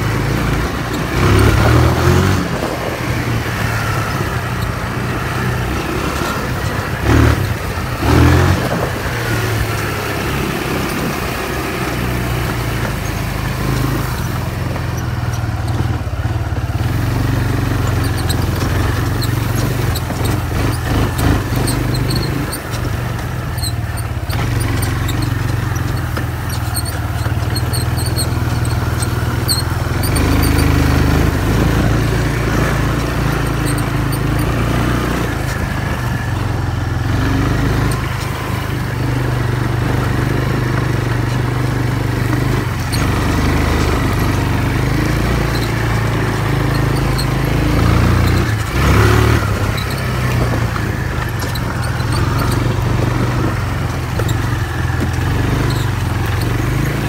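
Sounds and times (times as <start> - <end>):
atv engine revving: 0.0 - 57.0
high squeaks: 16.7 - 57.0.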